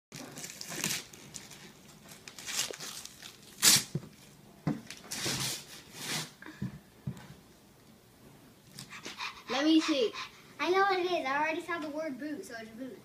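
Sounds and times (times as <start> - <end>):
wrapping paper ripping: 0.2 - 4.0.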